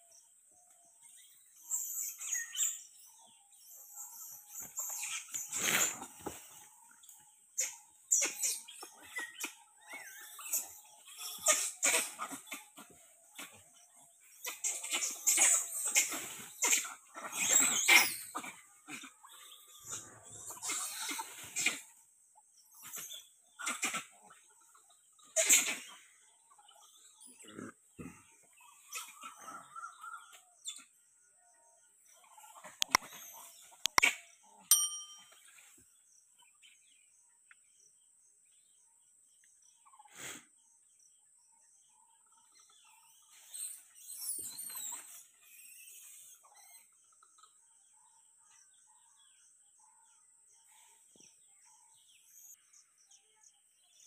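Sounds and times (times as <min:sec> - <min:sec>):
bird chirps: 0:00.0 - 0:21.9, 0:22.6 - 0:54.0
monkeys calling: 0:07.6 - 0:22.1, 0:25.3 - 0:30.9
bell ding: 0:34.7 - 0:35.5.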